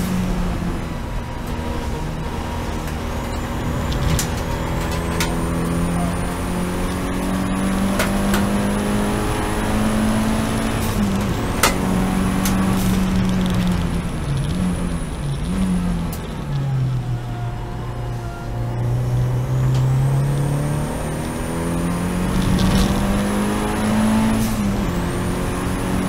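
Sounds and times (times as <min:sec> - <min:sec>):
race car engine at high revs: 0:00.0 - 0:26.0
sharp clicks and knocks: 0:02.8 - 0:05.8, 0:07.8 - 0:08.7, 0:10.9 - 0:16.7.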